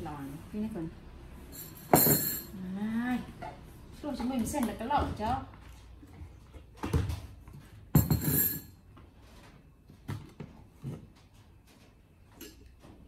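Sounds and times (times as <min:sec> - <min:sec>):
glass and utensils clattering: 0:01.6 - 0:02.6, 0:07.9 - 0:08.8.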